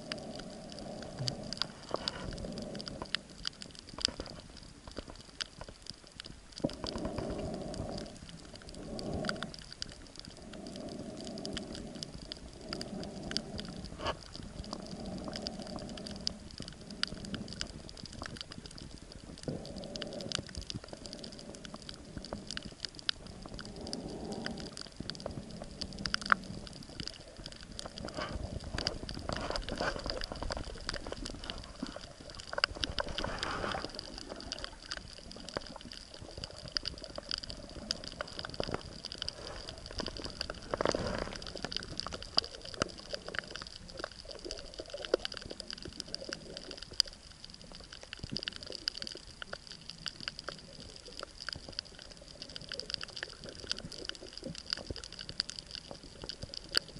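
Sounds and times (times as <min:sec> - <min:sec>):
underwater crackle of clicks: 0:00.0 - 0:56.9
rushing water: 0:22.0 - 0:56.9.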